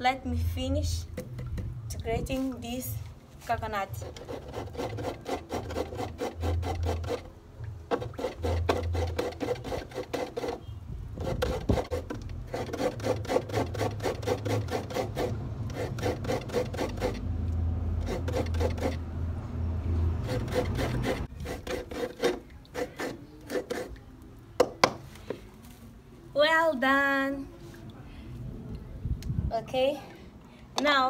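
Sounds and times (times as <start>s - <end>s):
coconut scraped on a grater: 3.9s - 7.3s, 7.9s - 17.2s, 18.0s - 19.0s, 20.2s - 24.0s.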